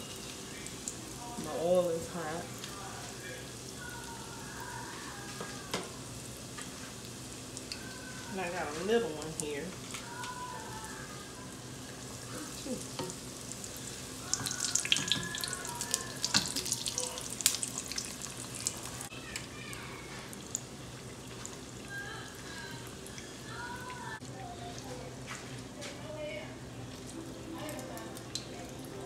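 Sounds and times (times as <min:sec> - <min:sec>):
oil crackling and popping: 0:00.0 - 0:11.2, 0:12.0 - 0:24.2
food deep-frying in hot oil: 0:00.0 - 0:25.3, 0:26.2 - 0:29.0.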